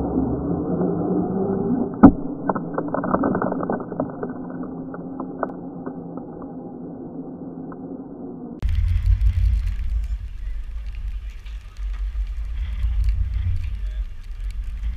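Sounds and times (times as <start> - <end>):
stones and grit ticking: 2.0 - 6.5, 8.6 - 14.9
rc car motor and tyre drone: 8.6 - 14.9.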